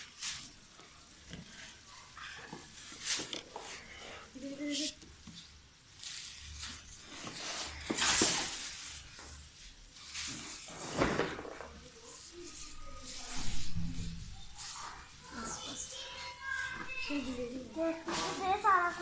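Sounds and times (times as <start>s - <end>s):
cardboard rustling and rubbing: 6.0s - 15.0s.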